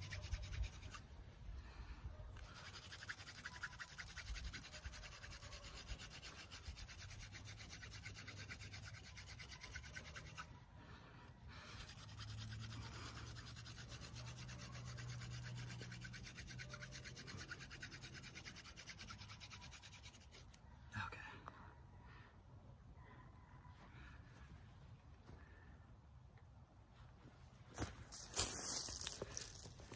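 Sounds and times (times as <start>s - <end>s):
hand drill scratchy rubbing: 0.0s - 1.2s, 2.4s - 10.5s, 11.6s - 20.6s, 28.1s - 29.9s.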